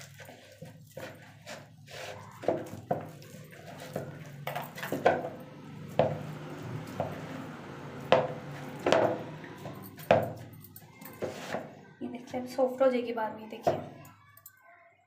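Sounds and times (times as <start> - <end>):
hands kneading dough: 0.0 - 12.0.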